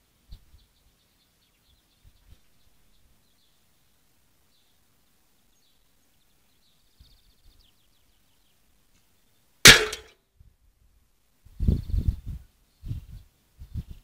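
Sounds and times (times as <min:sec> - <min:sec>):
faint bird chirps: 0:00.2 - 0:09.5, 0:11.6 - 0:14.0
arrow hitting metal can: 0:09.7 - 0:10.1.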